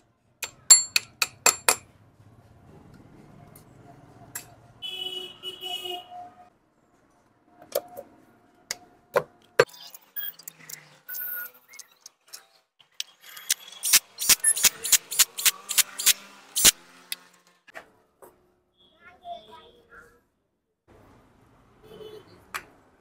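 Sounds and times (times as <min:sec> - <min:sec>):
metallic clicks of bolts and tools: 0:11.8 - 0:17.3.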